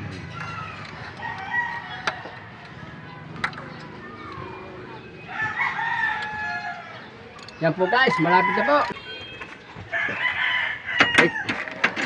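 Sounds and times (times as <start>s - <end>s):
rooster crowing: 0.6s - 2.4s, 5.3s - 7.0s, 7.9s - 8.9s, 9.9s - 11.8s.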